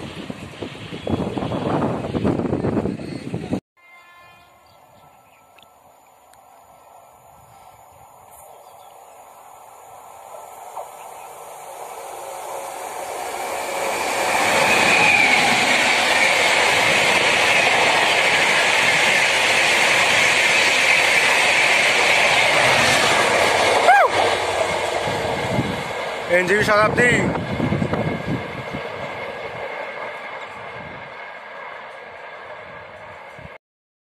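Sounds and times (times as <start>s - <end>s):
wind buffeting microphone: 0.0s - 3.6s, 14.0s - 31.3s
train passing at speed: 0.0s - 33.6s.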